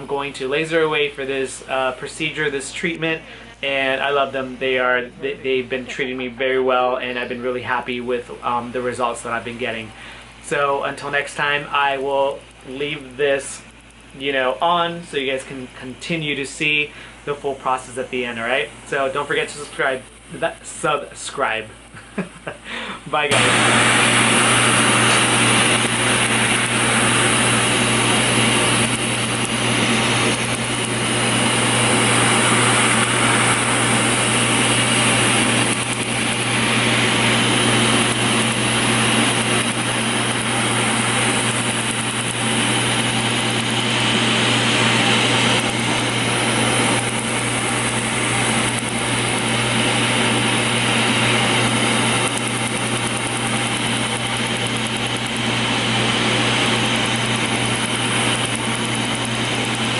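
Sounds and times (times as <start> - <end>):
machine low hum: 0.0 - 59.9
cold air blowing through hose: 22.5 - 59.9.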